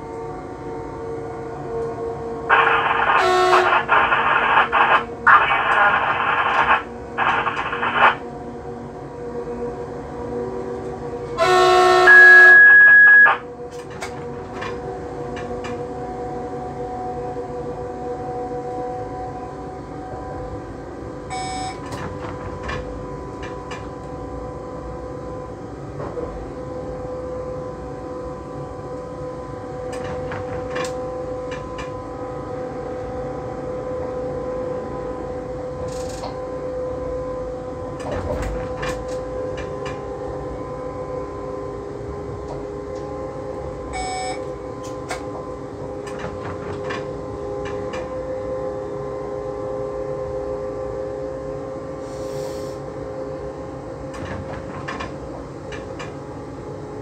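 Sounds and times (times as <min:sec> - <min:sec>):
electric train drive whine: 0:00.0 - 0:57.0
wheels rumbling on rails: 0:00.0 - 0:57.0
short electronic beep: 0:12.1 - 0:13.4, 0:21.3 - 0:21.8, 0:44.0 - 0:44.4.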